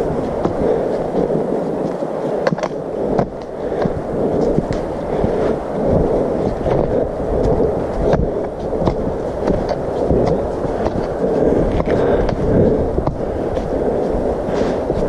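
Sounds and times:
footsteps on leafy dirt trail: 0:00.0 - 0:15.0
microphone rubbing rumble: 0:00.0 - 0:15.0
trekking pole taps: 0:00.3 - 0:05.0, 0:06.4 - 0:13.7.

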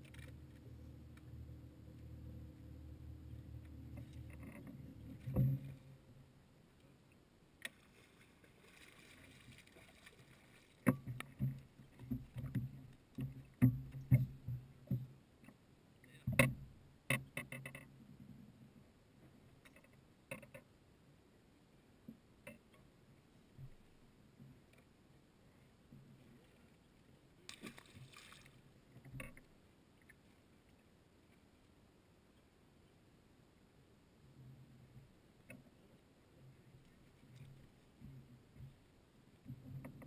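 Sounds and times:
trolling motor humming: 0:00.0 - 0:06.4.

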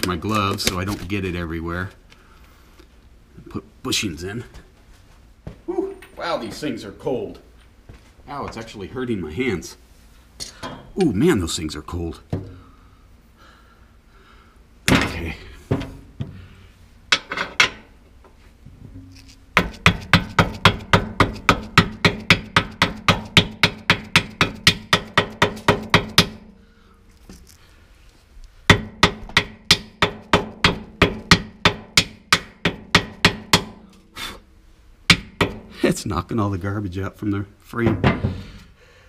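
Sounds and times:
hammer striking metal: 0:19.6 - 0:26.6, 0:28.7 - 0:34.0, 0:35.1 - 0:35.7.

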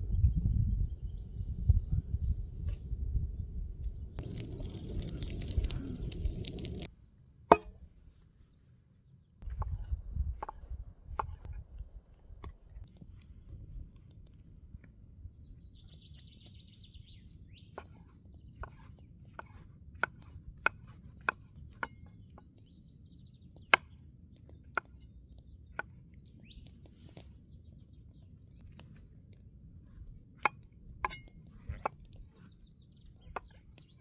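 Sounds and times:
bird chirping: 0:15.0 - 0:19.1, 0:22.0 - 0:28.8
knife chopping on wood: 0:17.7 - 0:22.1.

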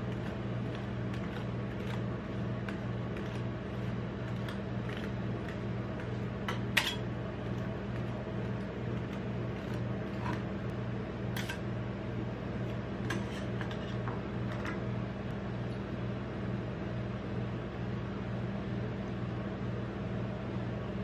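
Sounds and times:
metal spatula scraping and tapping: 0:00.0 - 0:10.6, 0:11.4 - 0:11.6, 0:13.0 - 0:14.2
low hum of cold plate: 0:00.0 - 0:16.7.

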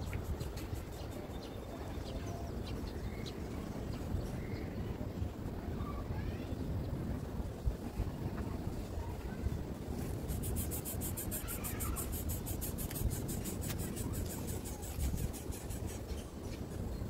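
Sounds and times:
wind rumbling on microphone: 0:00.0 - 0:17.0
rapid high-pitched ticking: 0:10.2 - 0:16.2.

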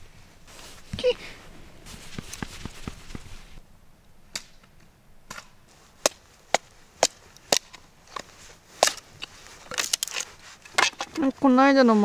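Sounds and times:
hatchet chopping wood: 0:05.3 - 0:09.0.

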